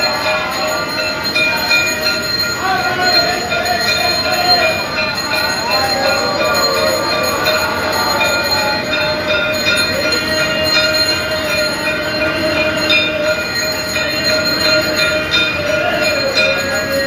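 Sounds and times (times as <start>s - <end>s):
temple bells ringing: 0.0s - 17.0s.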